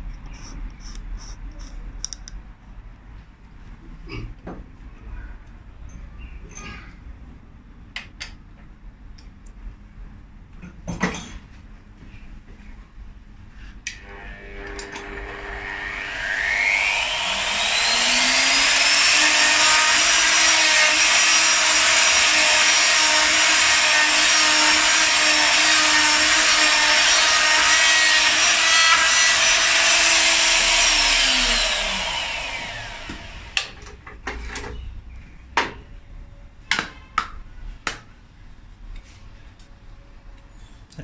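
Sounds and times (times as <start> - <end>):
mortising machine motor whining: 13.9 - 33.6.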